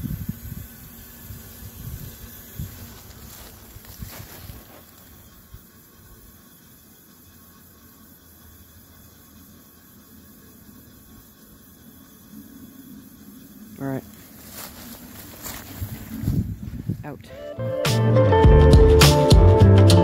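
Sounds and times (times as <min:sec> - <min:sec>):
wind rumble on microphone: 0:00.0 - 0:04.3, 0:15.6 - 0:17.2
faint outdoor hiss: 0:00.0 - 0:20.0
footsteps in dry grass: 0:01.5 - 0:05.5, 0:14.1 - 0:17.2.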